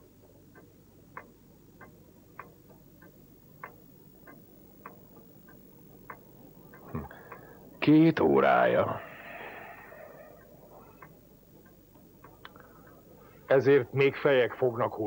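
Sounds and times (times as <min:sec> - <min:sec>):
pendulum clock ticking: 0:00.0 - 0:15.0.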